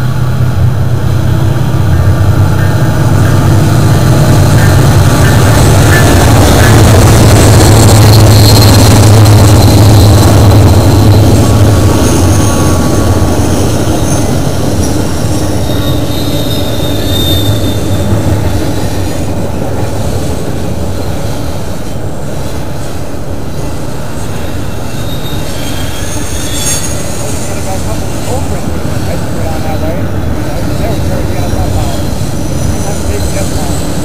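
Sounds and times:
freight train rumbling on rails: 0:00.0 - 0:34.0
high wheel squeals: 0:04.6 - 0:19.2, 0:24.2 - 0:28.4, 0:29.0 - 0:34.0.

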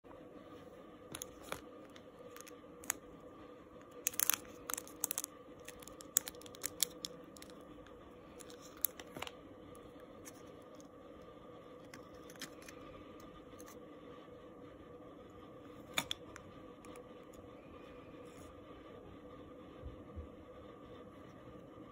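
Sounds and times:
faint steady hum: 0:00.0 - 0:21.9
plastic packaging crinkling: 0:01.1 - 0:03.1, 0:03.8 - 0:09.4.

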